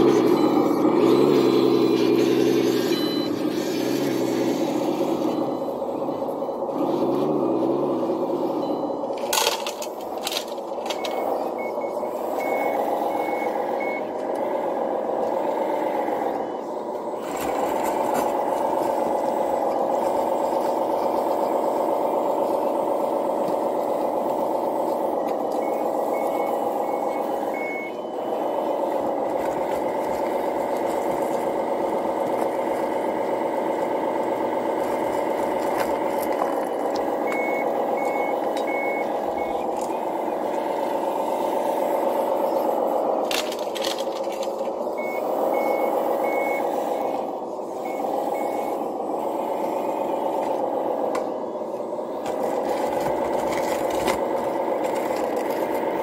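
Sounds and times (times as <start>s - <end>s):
hydraulic pump and motors whining: 0.0s - 56.0s
reversing beeper: 0.0s - 56.0s.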